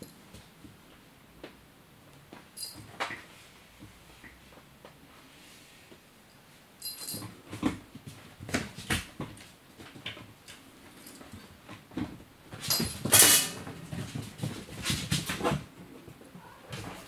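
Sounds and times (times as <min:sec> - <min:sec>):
kittens rustling and scrabbling: 0:06.8 - 0:17.0.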